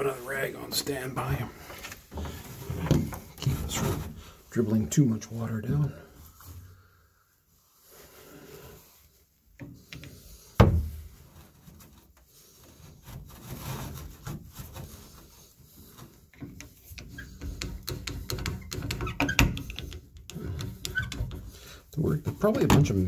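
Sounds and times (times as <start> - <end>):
towel rubbing on metal valve: 11.2 - 23.0.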